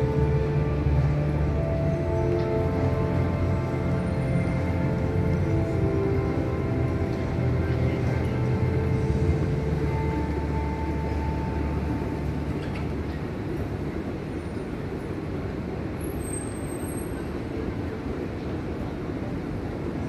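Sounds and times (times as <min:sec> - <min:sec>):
light show music: 0:00.0 - 0:13.9
outdoor background din: 0:00.0 - 0:20.0.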